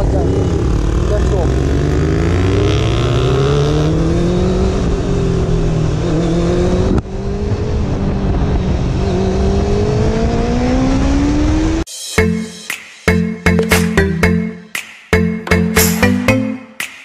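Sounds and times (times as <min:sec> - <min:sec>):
motorcycle engine accelerating: 0:00.0 - 0:11.8.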